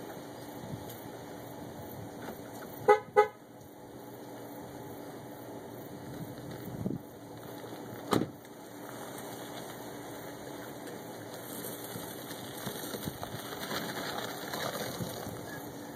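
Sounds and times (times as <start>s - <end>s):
steady background hiss: 0.0s - 15.9s
car door slamming shut: 8.1s - 8.4s.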